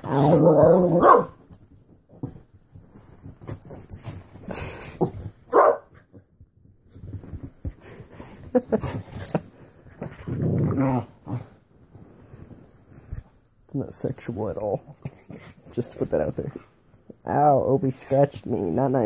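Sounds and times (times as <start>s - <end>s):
puppies growling and barking: 0.0s - 1.4s, 8.7s - 11.6s.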